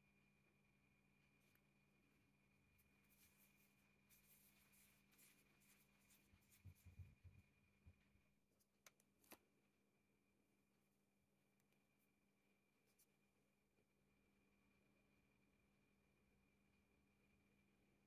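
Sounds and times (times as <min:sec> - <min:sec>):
paper crinkling: 0:02.8 - 0:07.3.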